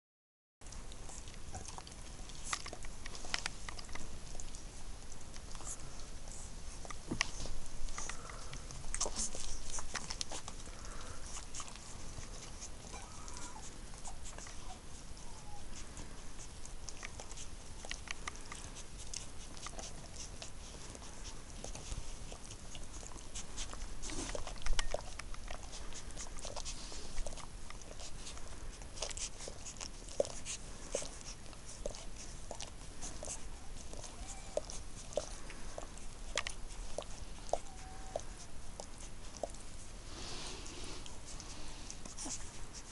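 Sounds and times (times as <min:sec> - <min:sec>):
puppies suckling: 0:00.6 - 0:42.9
puppies squeaking: 0:12.8 - 0:15.8, 0:29.2 - 0:39.6.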